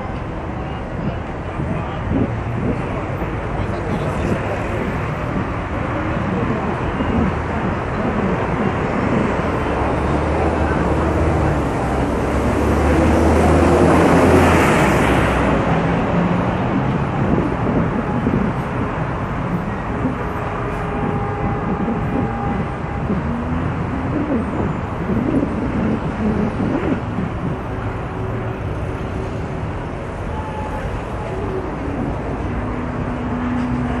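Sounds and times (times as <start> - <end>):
heavy road traffic rushing: 0.0 - 34.0
vehicle passing: 9.2 - 30.1.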